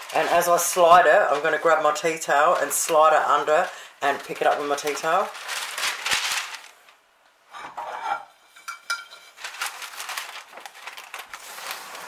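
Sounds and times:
baking paper crinkling: 0.0 - 7.0, 8.9 - 12.0
ceramic plate clink: 7.6 - 9.2.

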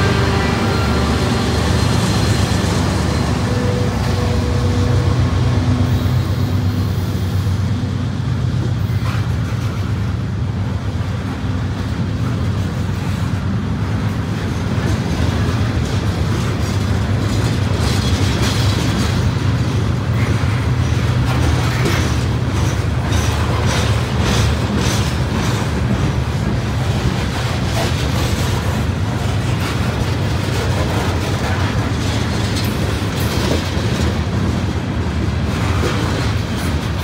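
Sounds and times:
freight cars rumbling past: 0.0 - 11.7
locomotive engine hum: 0.0 - 37.0.

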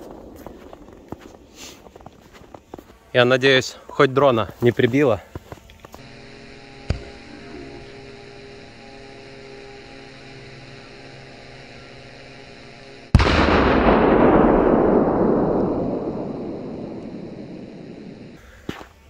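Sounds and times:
steady low hum: 0.0 - 19.0
loud firecracker blast: 13.1 - 18.4.

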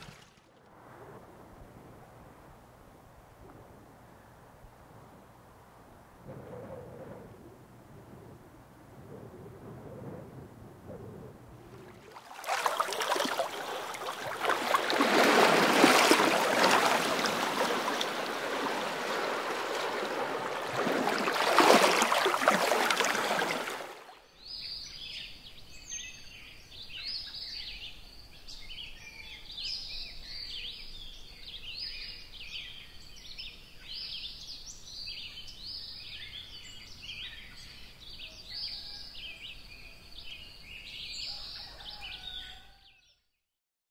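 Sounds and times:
birds chirping and trilling: 24.3 - 43.1.

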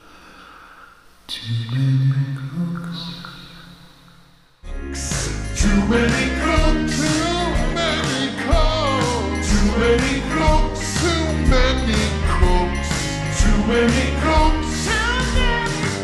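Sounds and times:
vaporwave music with drum beat: 5.1 - 16.0.

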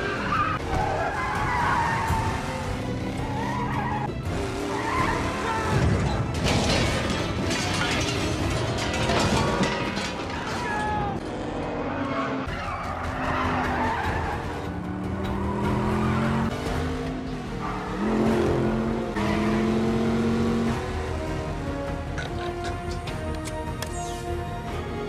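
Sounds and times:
car engine revving hard: 14.6 - 21.4.

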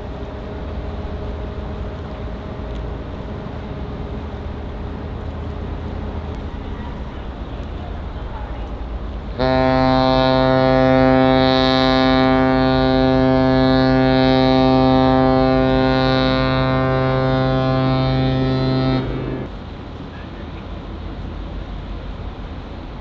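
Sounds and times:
ship's whistle prolonged blast: 9.4 - 19.5.

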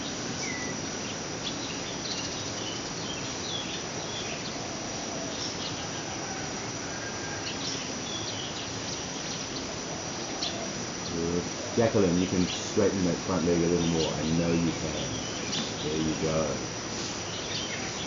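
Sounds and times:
constant low hiss: 0.0 - 18.0
high-pitched insect drone: 0.0 - 18.0.

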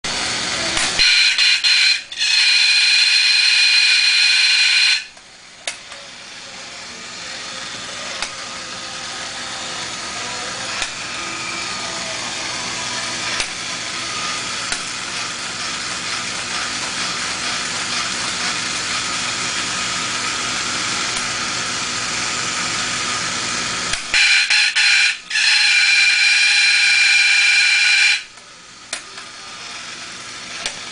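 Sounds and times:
toy motor and gears whirring: 0.4 - 5.2, 7.2 - 21.4
toy rooster mechanical crow: 1.0 - 5.1, 24.1 - 28.3.

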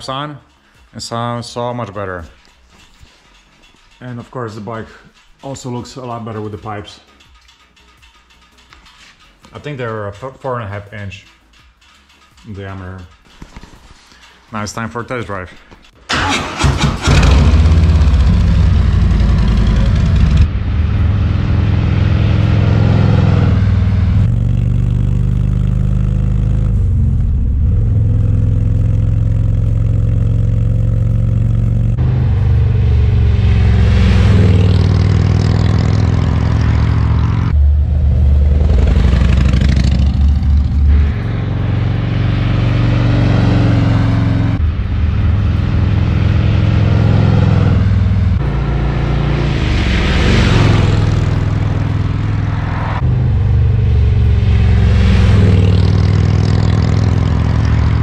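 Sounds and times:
motorcycle engine running: 17.0 - 48.9, 50.7 - 58.0
motorcycle riding past accelerating: 17.1 - 58.0.

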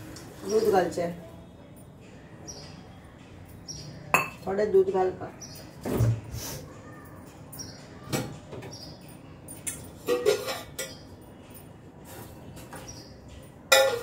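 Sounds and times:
steel kitchen vessels clinking: 8.8 - 11.8, 13.4 - 14.0.

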